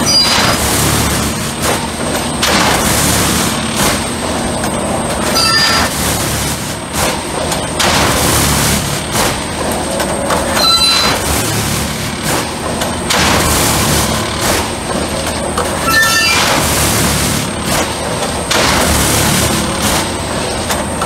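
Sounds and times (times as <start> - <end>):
hydraulic machine drive running: 0.0 - 21.0
tamping tines working ballast: 0.0 - 21.0
metallic squeal: 10.6 - 11.2, 15.8 - 16.5.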